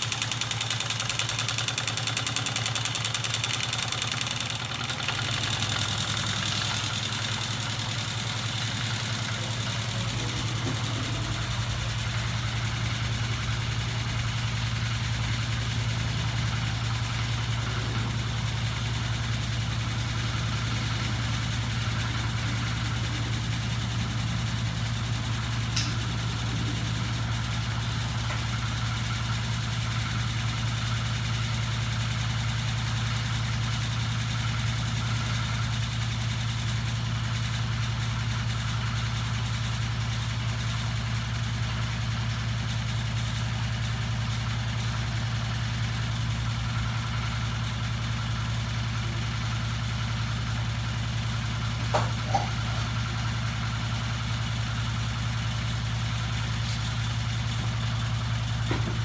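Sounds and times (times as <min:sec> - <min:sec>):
electric motor humming: 0:04.6 - 0:29.0
deeper low hum: 0:09.9 - 0:13.5
sharp click: 0:25.7 - 0:26.2.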